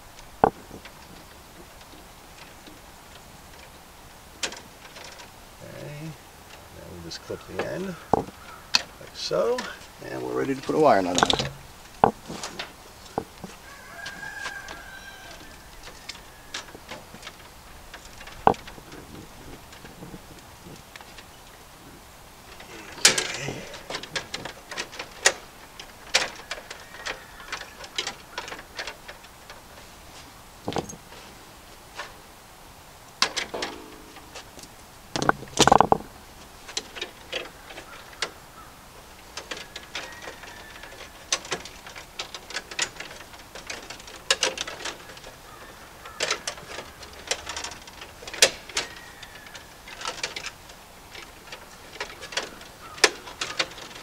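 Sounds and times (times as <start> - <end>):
rubbing on wiring: 0.0 - 32.3
hand work on electrical wiring: 0.0 - 32.4, 33.0 - 54.0.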